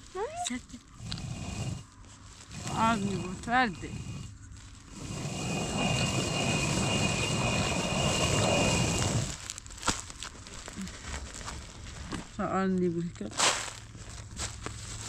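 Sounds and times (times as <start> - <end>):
stone quern grinding grain: 0.9 - 10.2.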